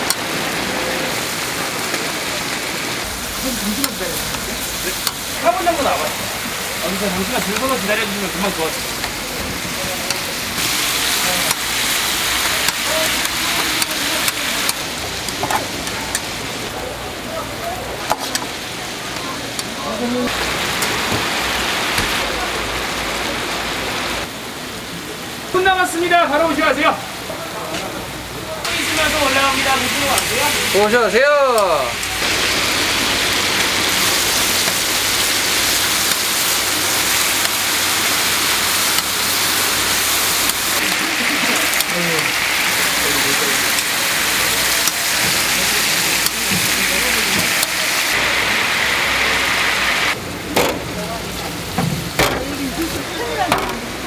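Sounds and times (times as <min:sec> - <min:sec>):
meat patties sizzling: 0:00.0 - 0:16.8, 0:28.7 - 0:50.2.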